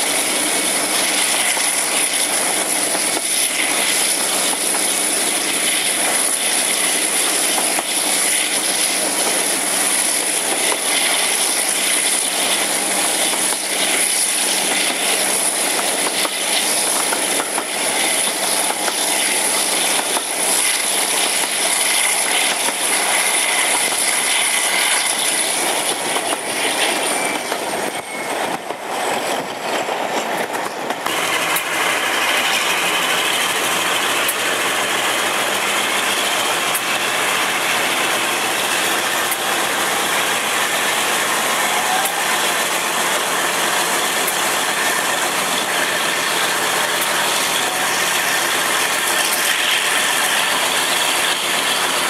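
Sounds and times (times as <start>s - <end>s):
diesel locomotive engines running: 0.0s - 52.0s
rail noise: 0.0s - 52.0s.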